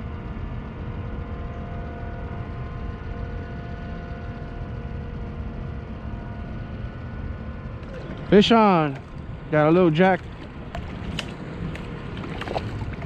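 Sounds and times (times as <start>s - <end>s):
faint hum of steady tones: 0.0s - 13.0s
low rumble: 5.2s - 13.0s.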